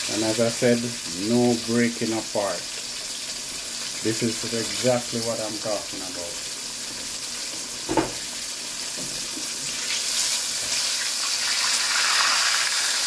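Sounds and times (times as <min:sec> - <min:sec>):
fish deep-frying in oil: 0:00.0 - 0:13.0
short knock: 0:07.9 - 0:08.2.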